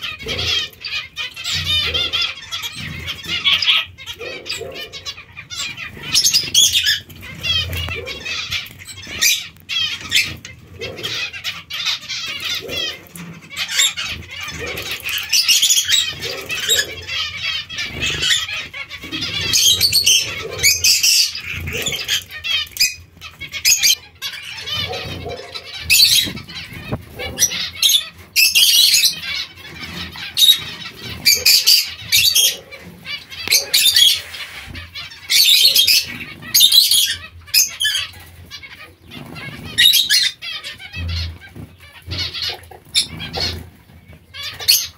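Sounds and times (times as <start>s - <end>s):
wings fluttering and splashing: 5.7s - 36.6s.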